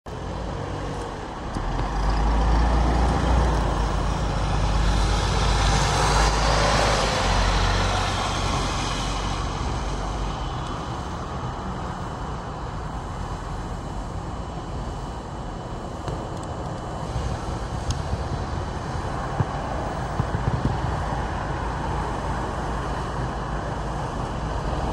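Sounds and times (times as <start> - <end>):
bus engine drone: 0.0 - 24.9.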